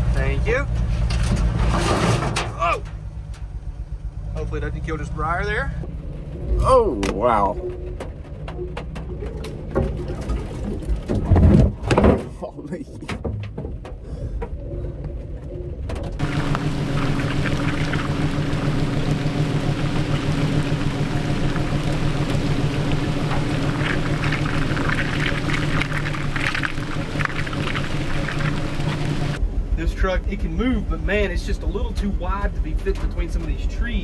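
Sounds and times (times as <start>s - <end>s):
truck engine idling: 2.7s - 6.9s, 16.2s - 34.0s
heavy rain: 16.2s - 29.4s.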